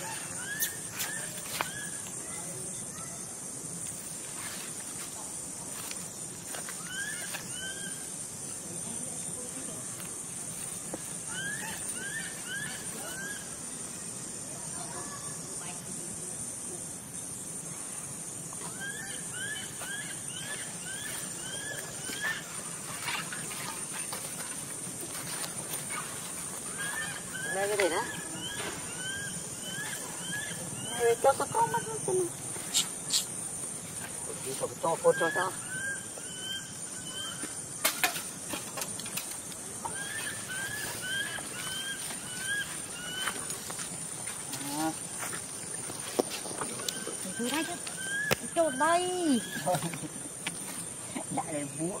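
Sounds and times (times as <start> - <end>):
animal chirping calls: 6.7 - 8.1, 11.2 - 13.6, 18.6 - 24.2, 25.8 - 33.4, 34.8 - 37.6, 39.8 - 43.6, 46.8 - 49.9.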